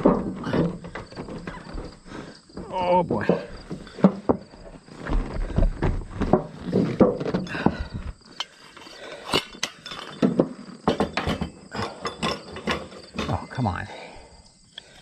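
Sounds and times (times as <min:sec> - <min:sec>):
metal knocks and clinks: 0:08.4 - 0:13.6.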